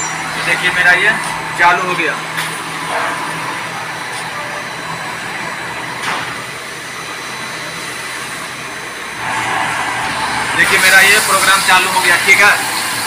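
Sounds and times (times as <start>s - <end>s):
faint high steady tones: 0.0s - 1.2s
machine whirring: 0.0s - 13.0s.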